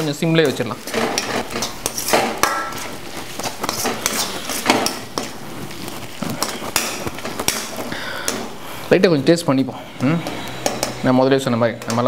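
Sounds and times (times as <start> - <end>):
steel ladle scraping a pan: 0.4 - 7.9, 9.7 - 12.0.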